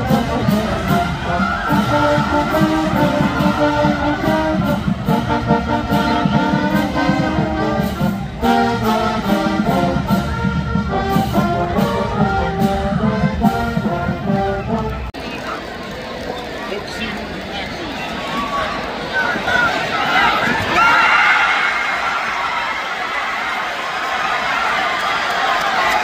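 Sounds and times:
brass music with steady beat: 0.0s - 15.2s.

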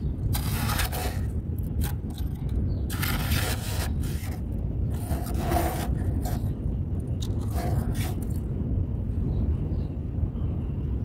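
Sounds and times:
low steady rumble: 0.0s - 11.0s
spoon scraping frost: 0.3s - 6.6s, 7.2s - 8.4s.

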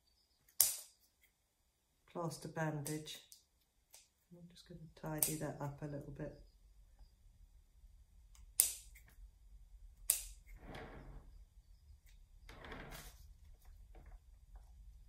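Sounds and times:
scissors snipping plaster bandage: 0.5s - 0.9s, 5.2s - 5.4s, 8.3s - 9.2s, 10.0s - 10.5s.

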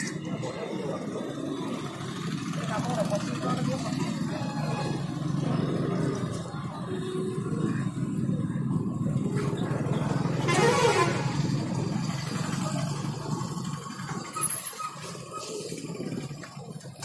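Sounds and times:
street traffic rumble: 0.0s - 17.0s
vehicle horn honking: 10.4s - 11.4s.

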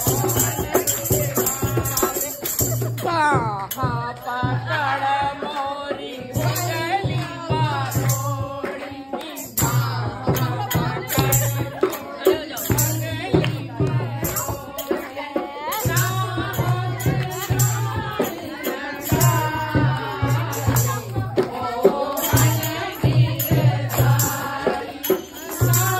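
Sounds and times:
rattling percussion: 0.0s - 25.9s
women singing folk song: 0.0s - 25.9s.

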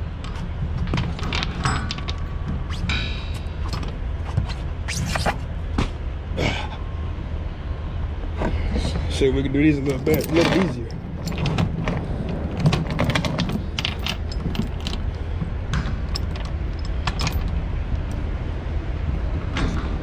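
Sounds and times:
steady low rumble: 0.0s - 20.0s
metal chain clinking and rattling: 0.3s - 3.9s, 9.8s - 15.2s, 15.8s - 18.2s.

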